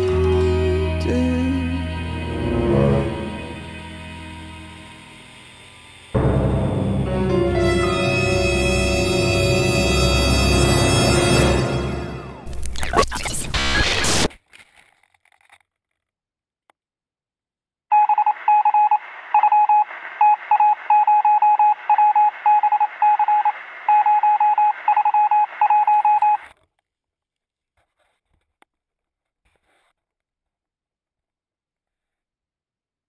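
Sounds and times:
morse-like electronic beeping: 0:12.5 - 0:14.3.

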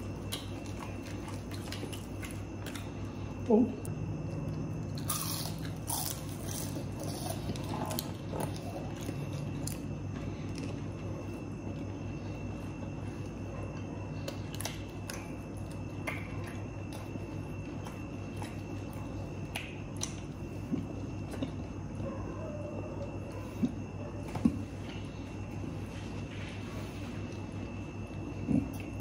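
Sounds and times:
chewing and biting food: 0:00.0 - 0:22.1, 0:23.0 - 0:29.0
low hum: 0:00.0 - 0:29.0
wet mouth clicks and smacks: 0:19.4 - 0:20.3.

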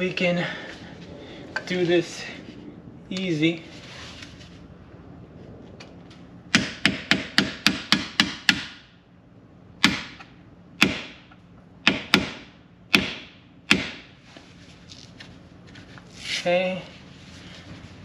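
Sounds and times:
hammer striking metal punch: 0:06.6 - 0:08.8, 0:09.8 - 0:14.1.

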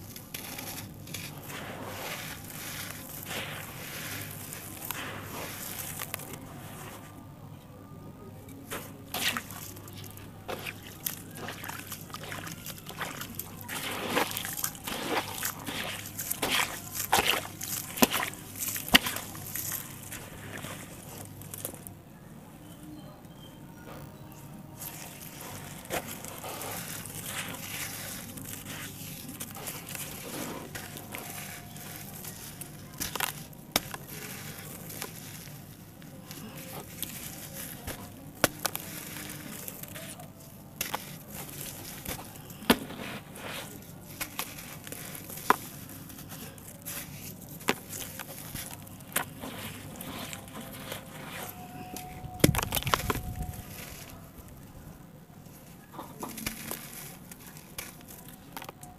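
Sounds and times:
wet dirt squelching by hand: 0:00.0 - 0:06.9, 0:08.7 - 0:21.9, 0:24.8 - 0:54.3
lumps of dirt cracking: 0:08.7 - 0:21.9, 0:24.8 - 0:54.6.

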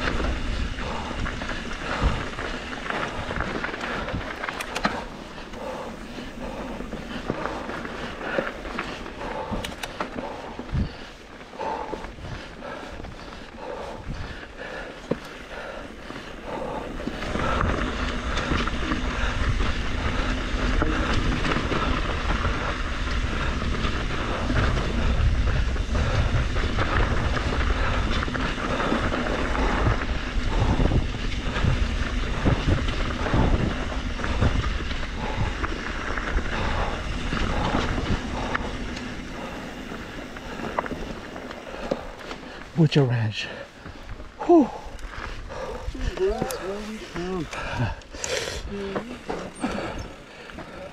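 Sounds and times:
wind rushing on microphone: 0:00.0 - 0:14.8, 0:16.4 - 0:42.3
bike knocking and rattling: 0:00.0 - 0:50.9
tyres rumbling on dirt and rock: 0:00.0 - 0:50.9.

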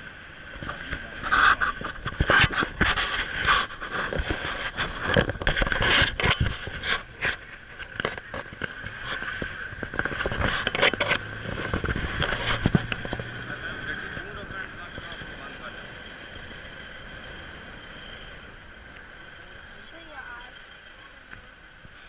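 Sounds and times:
wind buffeting microphone: 0:00.4 - 0:19.9
vehicle knocks and rattles: 0:04.1 - 0:17.8.

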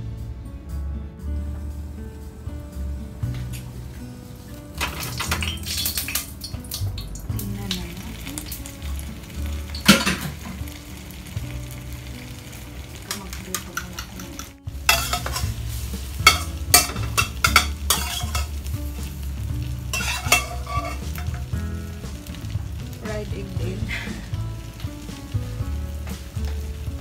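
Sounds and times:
low rumble of gas burner: 0:00.0 - 0:27.0
chicken sizzling in a tray: 0:03.2 - 0:27.0.

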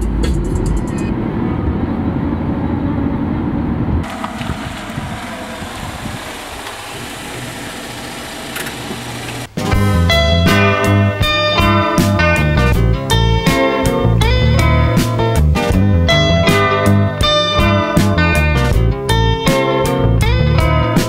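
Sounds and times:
road and engine noise inside car: 0:00.0 - 0:09.6
outdoor noise: 0:00.0 - 0:15.5.

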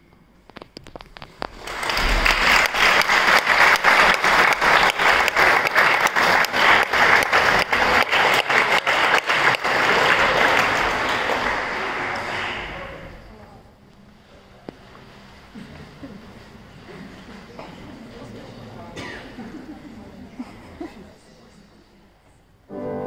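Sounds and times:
audience applauding: 0:01.3 - 0:13.2.

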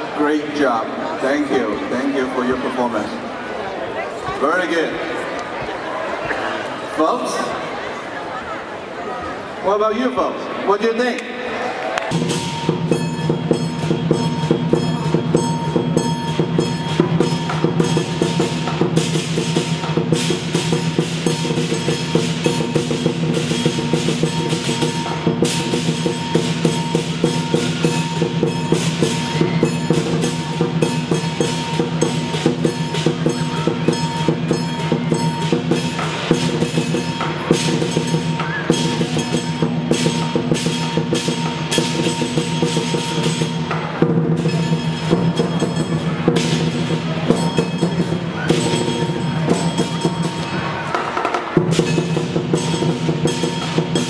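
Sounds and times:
cymbals clashing: 0:12.1 - 0:54.0
large drum beaten fast: 0:12.1 - 0:54.0.

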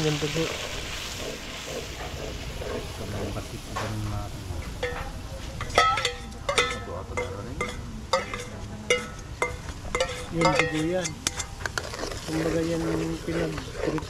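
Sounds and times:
liquid sizzling in hot pan: 0:00.0 - 0:14.0
spatula tapping ringing metal bowl: 0:05.8 - 0:11.5.

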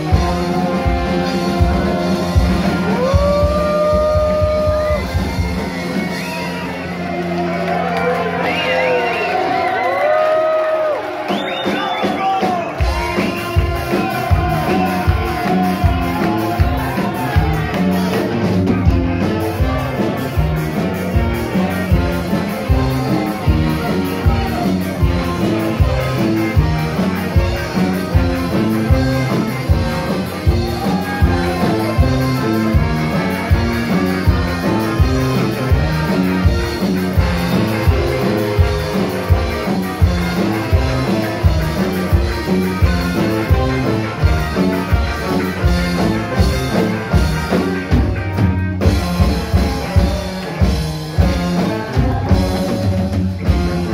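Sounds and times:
live rock band playing: 0:00.0 - 0:53.9.

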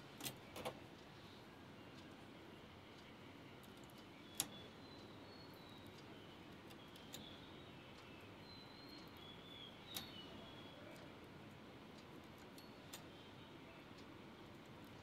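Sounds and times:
knitting machine clicks: 0:00.0 - 0:01.1, 0:03.0 - 0:13.2.

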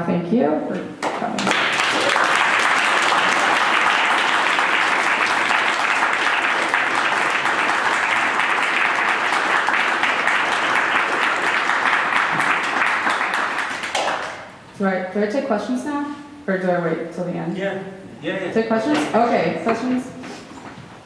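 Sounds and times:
audience applauding: 0:01.0 - 0:14.5.

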